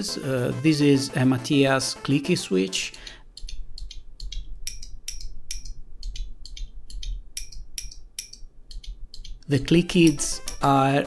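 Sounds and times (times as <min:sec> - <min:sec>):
keyboard switches clicking: 0:03.0 - 0:10.7.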